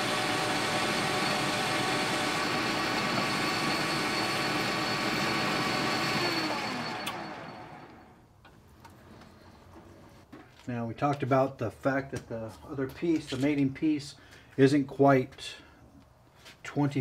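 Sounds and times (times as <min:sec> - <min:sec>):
metal lathe running: 0:00.0 - 0:08.1
click: 0:07.0 - 0:07.2.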